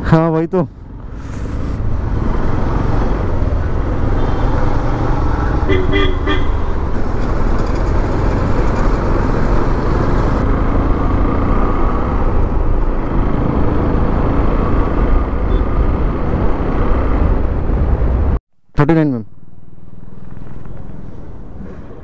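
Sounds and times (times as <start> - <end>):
passing traffic: 0.0 - 22.0
wind and road noise: 0.0 - 22.0
motorcycle engine: 0.8 - 18.3.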